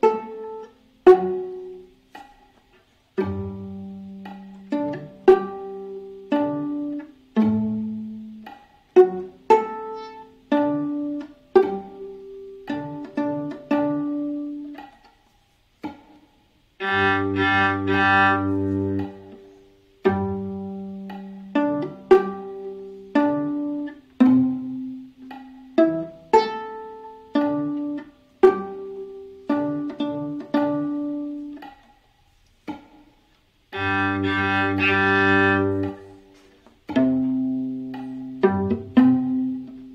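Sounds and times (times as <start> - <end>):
viola pizzicato notes: 0.0 - 39.9
viola bowed held note: 16.8 - 19.6, 33.7 - 36.3.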